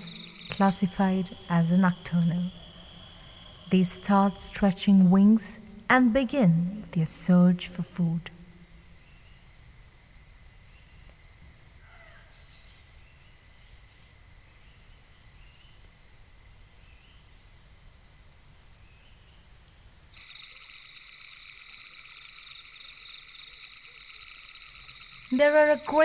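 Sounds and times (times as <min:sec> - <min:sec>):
insects fast pulsing trill: 0:00.0 - 0:09.6, 0:20.2 - 0:26.0
insect chirps: 0:00.0 - 0:26.0
insect chorus high drone: 0:00.0 - 0:26.0.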